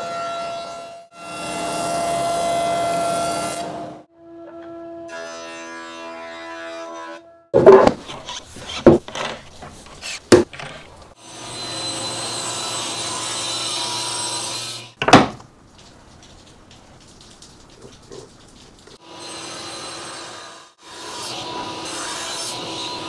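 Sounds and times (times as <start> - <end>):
wooden board knocking and sliding: 7.6 - 11.0, 15.0 - 15.4.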